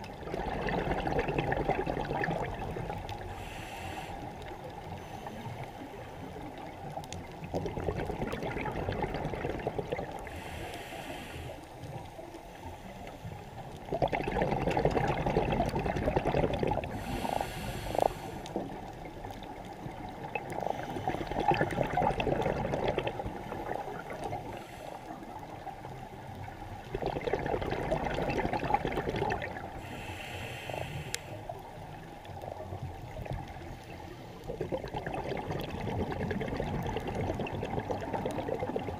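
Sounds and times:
bubbling exhaust bubbles: 0.0s - 3.4s, 6.3s - 10.4s, 13.7s - 17.8s, 18.4s - 29.8s, 34.4s - 38.9s
hissing regulator inhalations: 3.2s - 5.6s, 10.2s - 11.9s, 16.9s - 18.7s, 24.3s - 25.3s, 29.8s - 31.6s.

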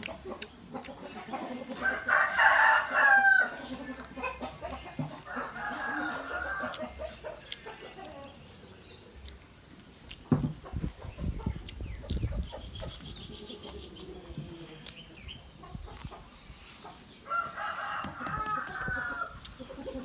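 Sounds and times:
rooster crowing: 1.8s - 3.6s, 5.3s - 6.9s, 17.3s - 19.4s.

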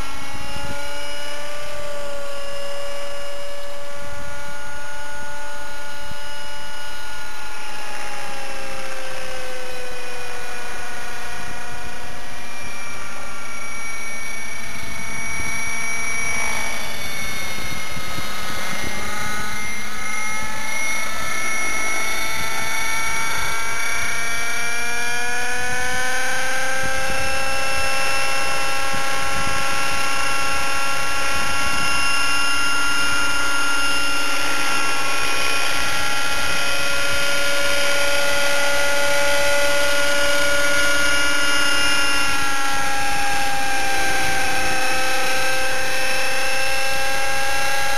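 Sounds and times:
rc helicopter engine whine and rotor: 0.0s - 47.9s.

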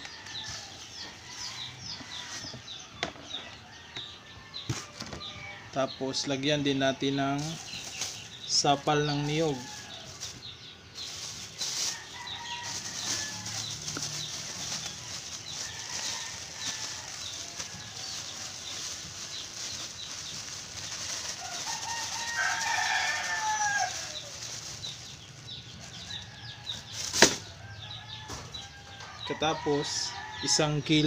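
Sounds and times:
plastic bag rustling: 0.0s - 2.6s, 7.4s - 28.0s
rooster crowing: 11.9s - 14.8s, 21.5s - 24.3s.

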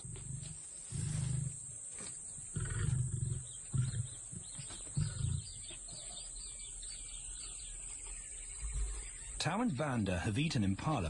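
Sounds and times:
lion grunting: 2.5s - 5.7s.

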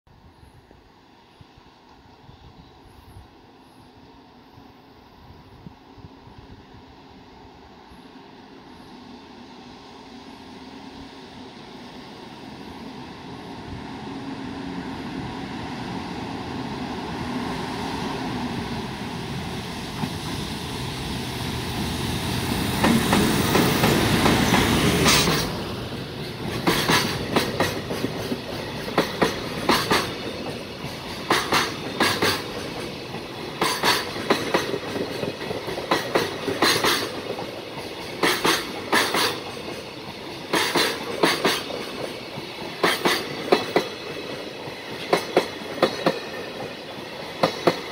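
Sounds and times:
electric locomotive passing: 0.1s - 47.9s
train wheels clicking over rail joints: 22.6s - 47.9s.

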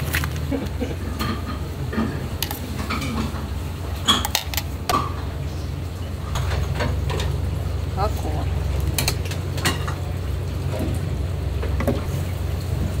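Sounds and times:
dishes and utensils clattering: 0.1s - 5.3s, 6.3s - 7.4s, 8.9s - 11.0s.

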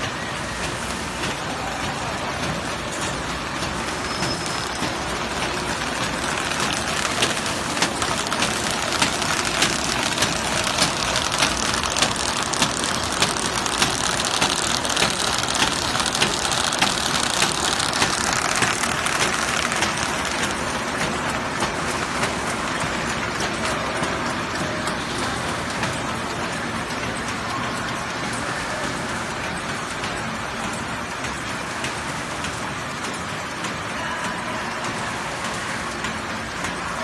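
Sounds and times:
machines running: 0.0s - 37.0s
sharp mechanical clicks: 4.3s - 21.1s.

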